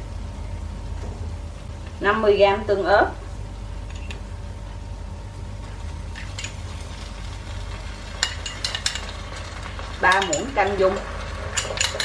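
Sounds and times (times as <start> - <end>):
pan sizzling on stove: 5.6 - 12.0.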